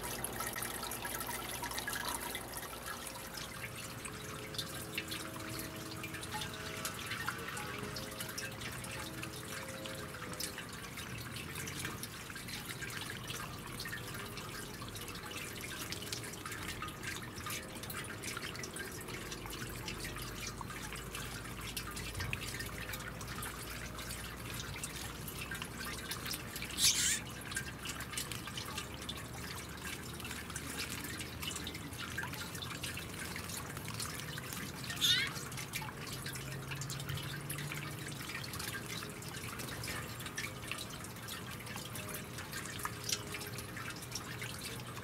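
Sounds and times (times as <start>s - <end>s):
fountain water trickling: 0.0s - 45.0s.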